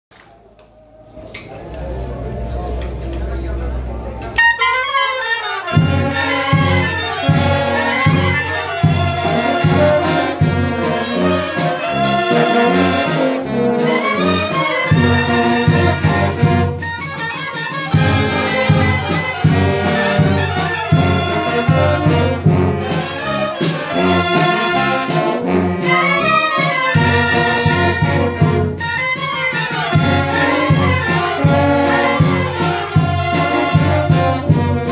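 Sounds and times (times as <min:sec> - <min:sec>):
wind band playing a lively tune: 0:01.4 - 0:34.9
steady low beat: 0:01.5 - 0:04.6.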